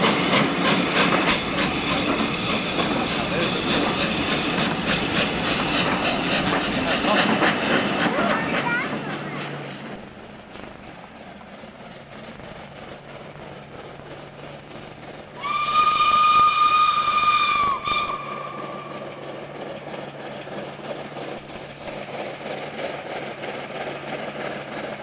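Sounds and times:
train running: 0:00.0 - 0:25.0
steam locomotive whistle: 0:15.4 - 0:19.1.

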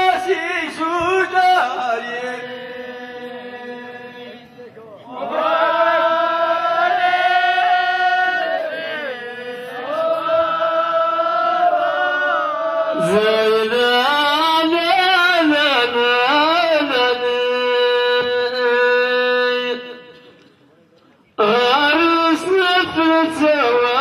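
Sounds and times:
man chanting into microphone: 0:00.0 - 0:04.7, 0:12.9 - 0:20.2, 0:21.4 - 0:24.0.

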